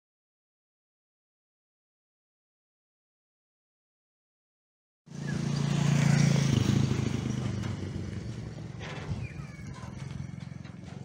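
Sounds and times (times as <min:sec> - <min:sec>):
engine humming: 0:05.1 - 0:11.0.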